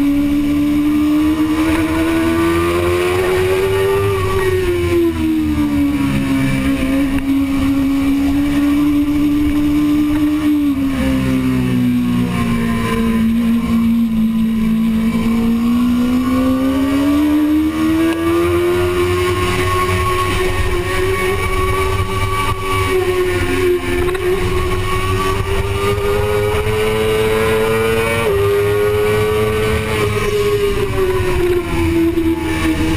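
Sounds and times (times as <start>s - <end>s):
motorcycle engine at high revs: 0.0s - 32.9s.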